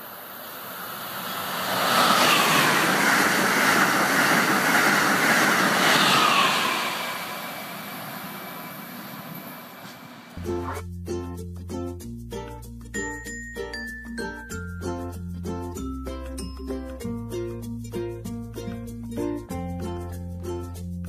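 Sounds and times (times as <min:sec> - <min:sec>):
faint train whine: 0:00.0 - 0:10.4
high-speed train rushing past: 0:00.0 - 0:10.4.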